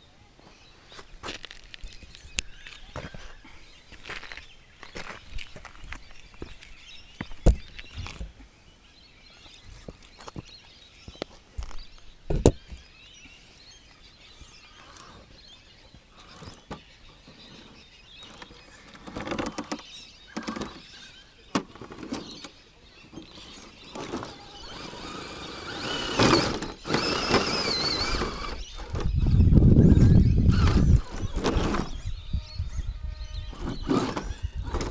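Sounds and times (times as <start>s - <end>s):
electric motor whining: 23.3s - 34.9s.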